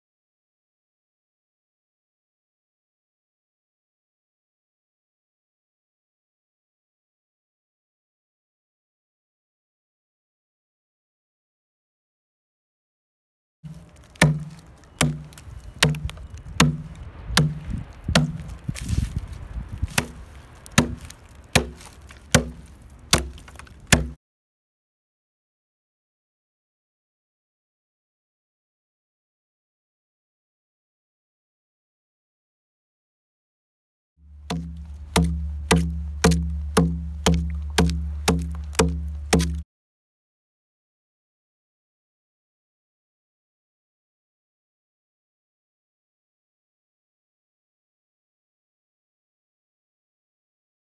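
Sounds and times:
stone adze chopping into log: 13.7 - 24.2, 34.5 - 39.6
soft scraping blow: 15.3 - 21.1.

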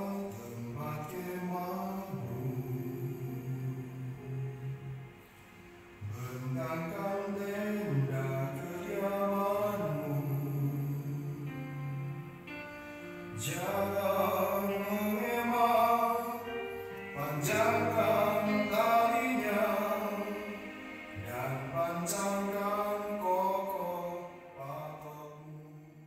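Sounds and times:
music backing: 0.0 - 26.0
group singing worship song: 17.1 - 24.4.

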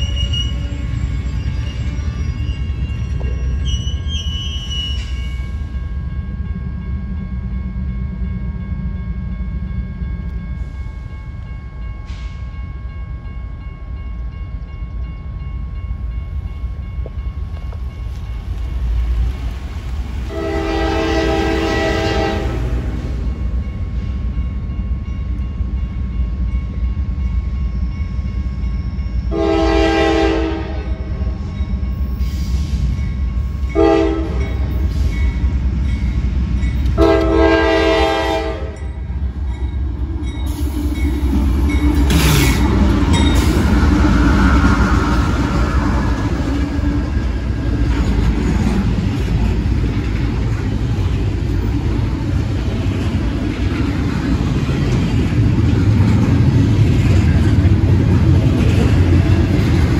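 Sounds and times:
low train rumble: 0.0 - 59.9
locomotive air horn blasts: 20.3 - 22.7, 29.3 - 31.0, 33.8 - 34.5, 37.0 - 38.8.

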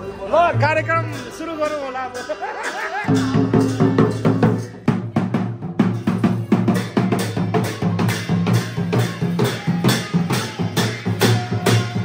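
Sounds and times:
barrel drum beating: 2.3 - 12.0.

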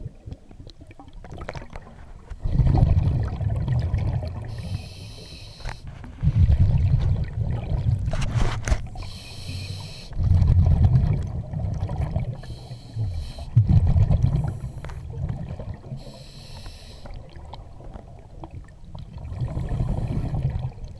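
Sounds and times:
exhaled bubbles rumbling: 0.0 - 4.8, 5.9 - 16.2, 17.0 - 20.9
regulator inhale hiss: 4.5 - 5.9, 9.0 - 10.2, 12.4 - 13.6, 16.0 - 17.2.

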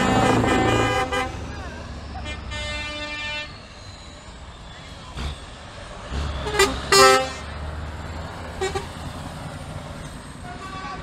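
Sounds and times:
truck air horn blasts: 0.0 - 1.6, 2.2 - 3.6, 6.3 - 7.5, 8.6 - 9.0, 10.4 - 11.0
truck diesel engine rumble: 0.0 - 11.0.

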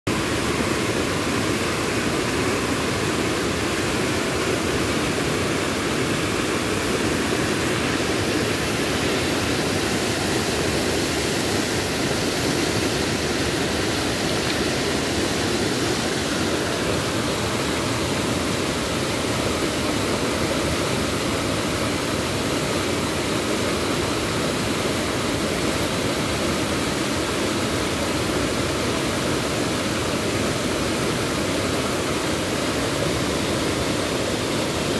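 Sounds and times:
river rushing over rapids: 0.1 - 34.9.

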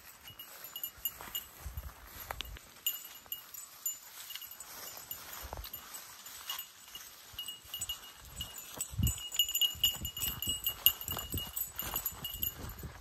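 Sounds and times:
footsteps on a trail: 0.0 - 13.0
wind buffeting the microphone: 1.2 - 2.6, 7.3 - 13.0.

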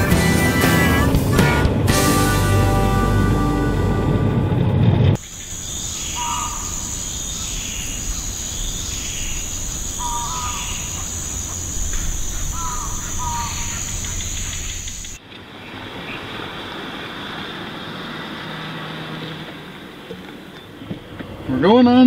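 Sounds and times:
vehicle road noise: 0.0 - 22.0
high-pitched insect drone: 5.2 - 15.2
short bird calls: 5.4 - 15.2.

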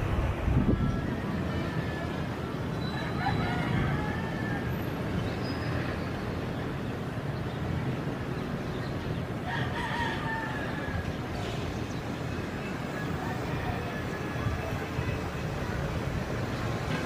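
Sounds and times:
distant jet engines rumbling: 0.0 - 17.0
bird crowing: 2.8 - 4.9, 9.4 - 11.2.

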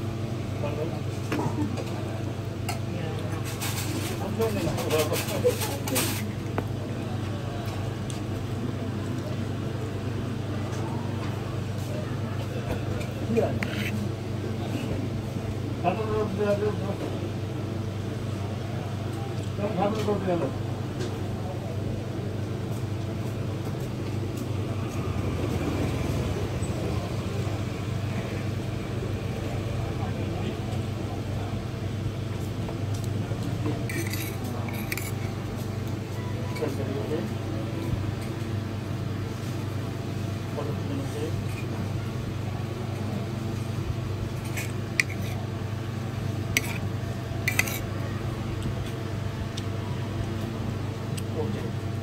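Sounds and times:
constant hum: 0.0 - 52.0
street traffic rumble: 0.0 - 52.0
metal spoon scraping ceramic plate: 13.5 - 14.0, 33.9 - 35.3, 44.3 - 45.4, 46.5 - 47.9.

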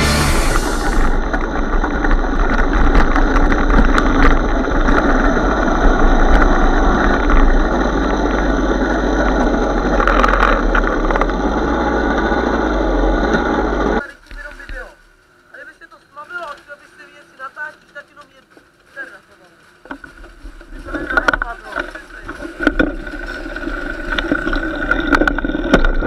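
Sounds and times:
two-stroke moped engine running: 0.0 - 14.0, 20.0 - 26.0
rushing ride noise: 0.0 - 14.1.

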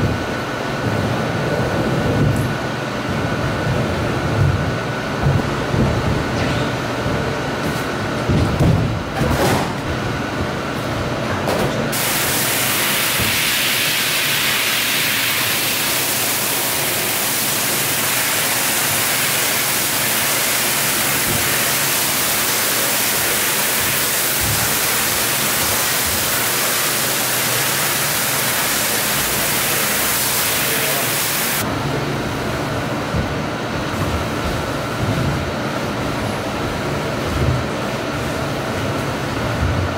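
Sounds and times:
pressure washer spraying water: 11.9 - 31.6.

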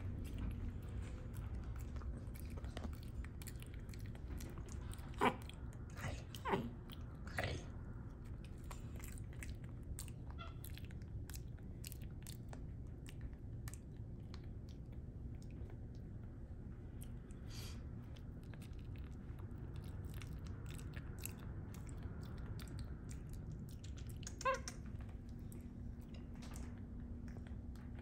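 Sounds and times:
monkey wet smacking clicks: 23.8 - 25.0.

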